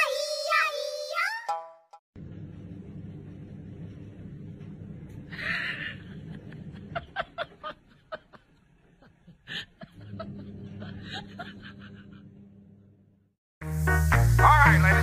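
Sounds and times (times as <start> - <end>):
snickering laughter: 5.4 - 12.4.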